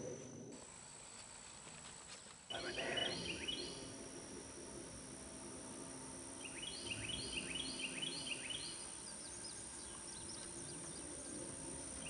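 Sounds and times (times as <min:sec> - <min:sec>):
steady background hum: 0:00.0 - 0:12.0
songbird singing: 0:02.5 - 0:12.0.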